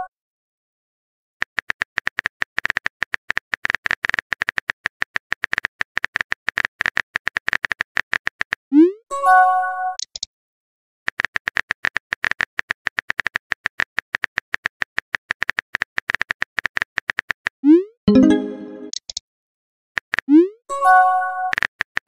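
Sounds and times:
short electronic chime: 18.1 - 18.9.

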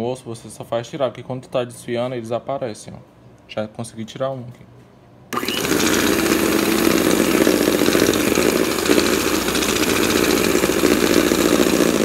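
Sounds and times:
electric hand mixer running: 5.4 - 12.0.

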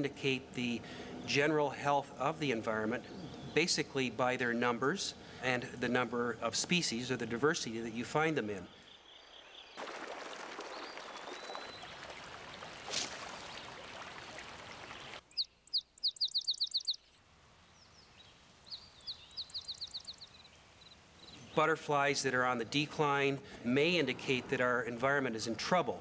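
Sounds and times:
steady outdoor hiss: 0.0 - 26.0
sparrow singing: 3.0 - 3.8, 15.3 - 17.2, 17.8 - 21.6.

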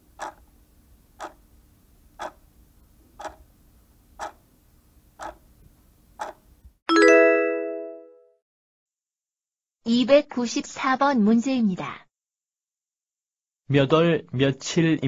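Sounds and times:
clock ticking: 0.0 - 0.4, 1.2 - 1.4, 2.2 - 2.4, 3.2 - 3.5, 4.2 - 4.4, 5.2 - 5.4, 6.2 - 6.4
bright chime: 6.9 - 8.2.

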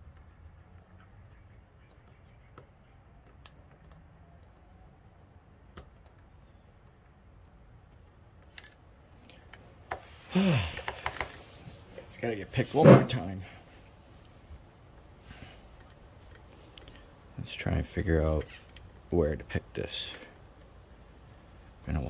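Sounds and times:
metallic clicks of lock pick: 8.4 - 8.8.

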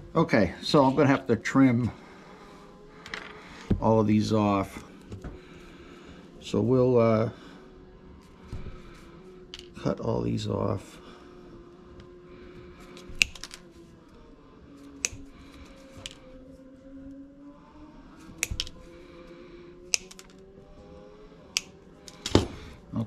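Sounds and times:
wire cutters snipping: 13.0 - 13.6, 15.0 - 15.3, 18.4 - 18.8, 19.9 - 20.3.

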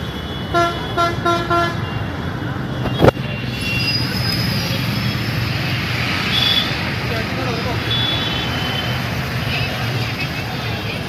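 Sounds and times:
street traffic: 0.0 - 11.0
vehicle horn tooting: 0.3 - 2.0.

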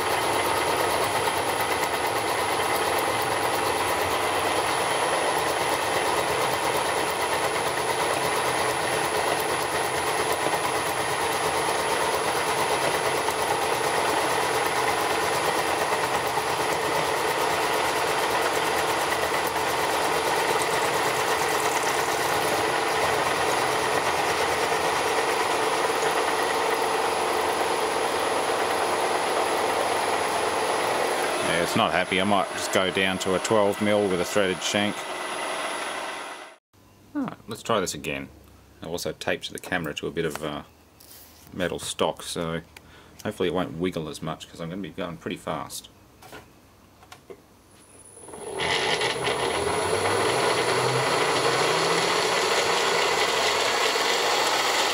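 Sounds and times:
milling machine cutting plastic: 0.0 - 36.6, 48.2 - 54.9.

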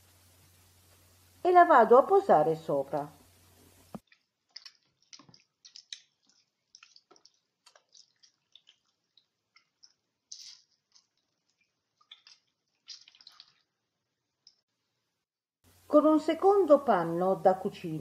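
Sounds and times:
wet meat being handled: 4.1 - 13.8.

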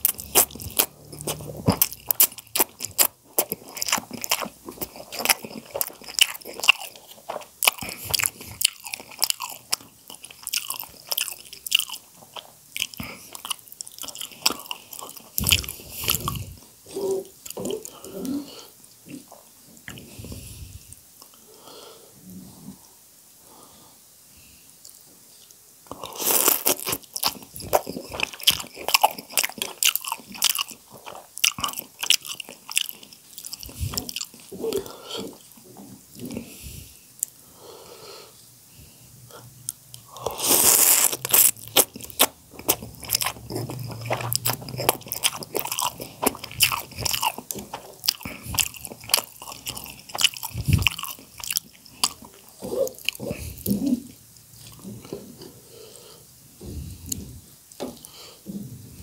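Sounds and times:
slurping and chewing noodles: 0.0 - 20.8, 25.9 - 37.3, 39.4 - 54.0.

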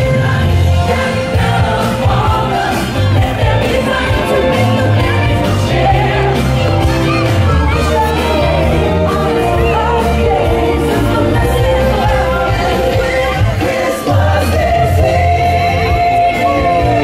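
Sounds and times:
music with steady bass beat: 0.0 - 17.0
person singing: 0.0 - 17.0.

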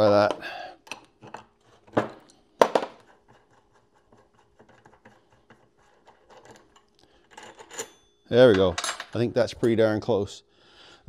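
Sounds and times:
faint ticking and scraping: 3.0 - 9.9
metal tool clanks: 6.4 - 9.8.

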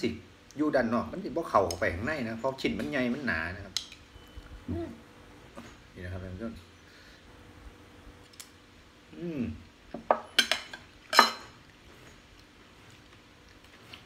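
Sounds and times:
spoon and bowl clinking on plates: 10.0 - 11.6.

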